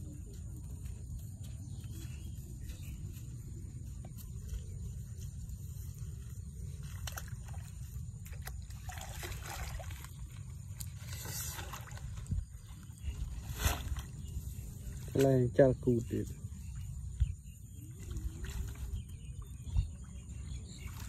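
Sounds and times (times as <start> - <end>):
steady low rumble: 0.0 - 8.8
water splashing and sloshing: 3.1 - 21.0
dry palm fronds rustling: 4.2 - 15.5.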